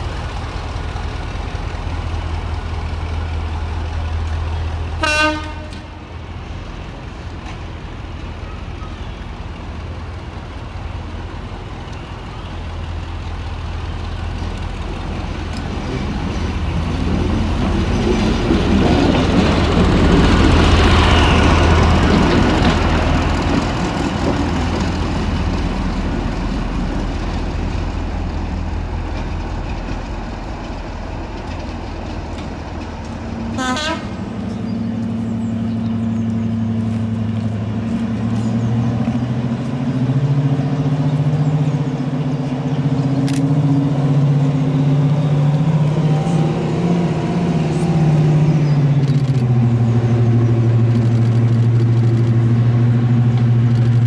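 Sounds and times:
diesel locomotive engine drone: 0:00.0 - 0:54.0
train wheel noise: 0:00.0 - 0:54.0
locomotive horn toot: 0:05.0 - 0:06.0, 0:33.5 - 0:34.2.

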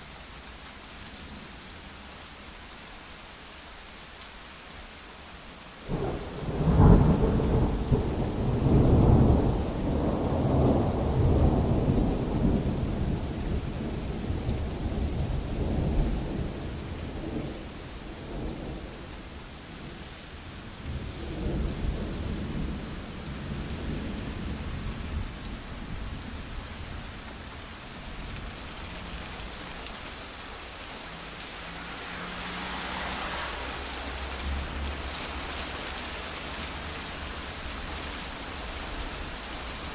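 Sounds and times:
steady rain on ground: 0:00.0 - 0:39.9
thunder rumbling: 0:05.9 - 0:17.6.

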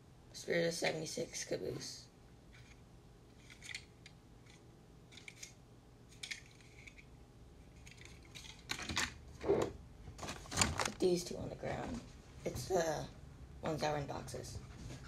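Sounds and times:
handling clicks and rustles: 0:10.1 - 0:11.0.

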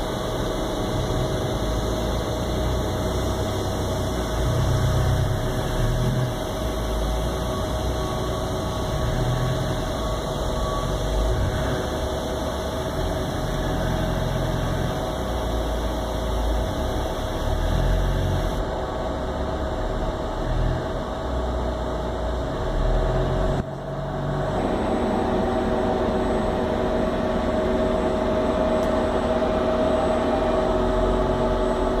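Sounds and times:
welding machine hum: 0:00.0 - 0:18.8
steady mid-pitched tone: 0:00.0 - 0:32.0.

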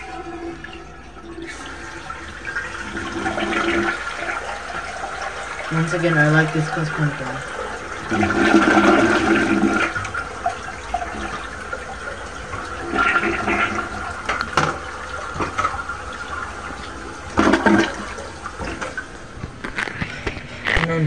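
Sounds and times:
toilet flushing: 0:00.0 - 0:21.0.

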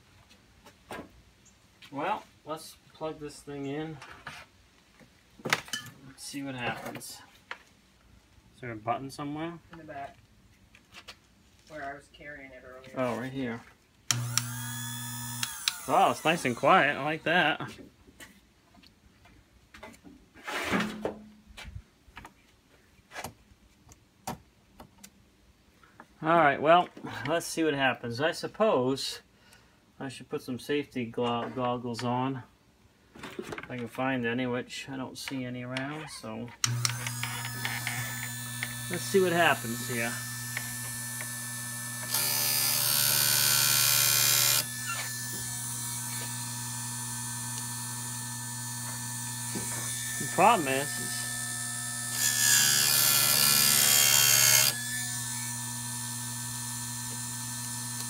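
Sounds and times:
sharpener motor humming: 0:14.1 - 0:17.1, 0:36.6 - 0:58.0
grinding wheel grinding metal: 0:14.1 - 0:17.2, 0:36.6 - 0:58.0.

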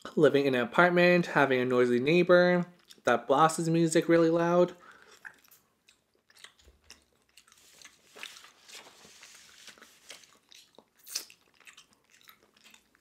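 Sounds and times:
person chewing with mouth clicks: 0:02.8 - 0:03.0, 0:04.8 - 0:08.3, 0:10.1 - 0:13.0.

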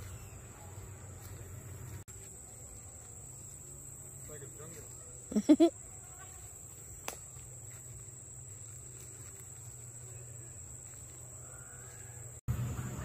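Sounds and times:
low outdoor rumble: 0:00.0 - 0:02.5, 0:07.6 - 0:13.0
insects trilling: 0:00.0 - 0:13.0.

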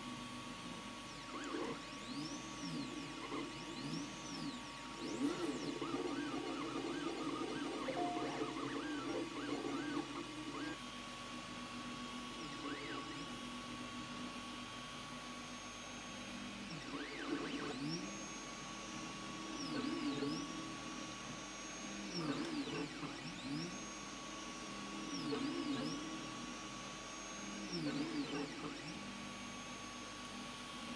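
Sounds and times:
stepper motors whining: 0:01.4 - 0:10.6
steady hum: 0:07.7 - 0:09.8.

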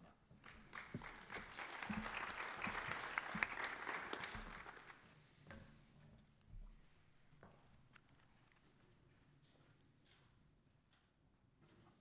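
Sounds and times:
audience applauding: 0:00.5 - 0:05.0.

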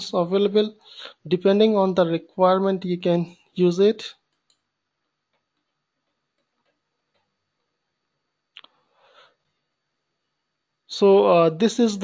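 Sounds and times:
faint clicks: 0:04.3 - 0:07.8.

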